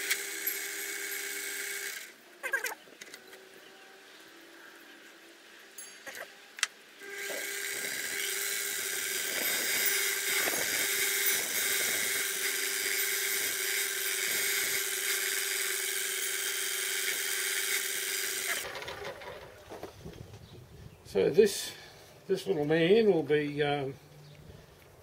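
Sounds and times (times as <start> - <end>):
lathe motor hum and whine: 7.0 - 18.6.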